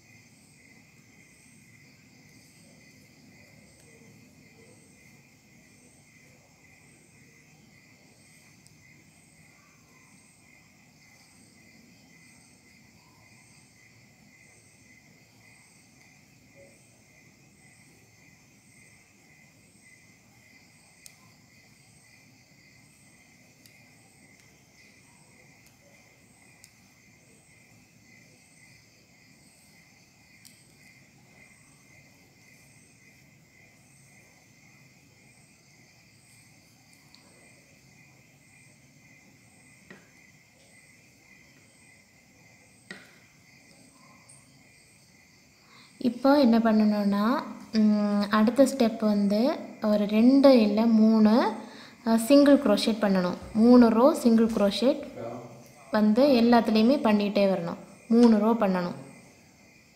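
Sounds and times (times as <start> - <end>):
faint crickets chirring: 0.0 - 59.9
faint sharp clicks: 30.4 - 30.7.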